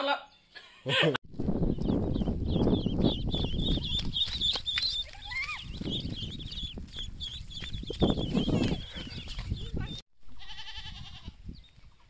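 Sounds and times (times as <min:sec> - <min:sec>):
ducklings peeping: 0:01.6 - 0:10.0.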